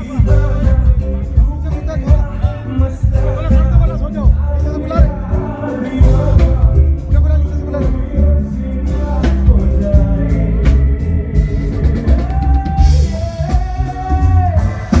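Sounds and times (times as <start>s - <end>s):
drums: 0.0s - 15.0s
heavy bass beat: 0.0s - 15.0s
live pop band music: 0.0s - 15.0s
person singing: 0.0s - 15.0s.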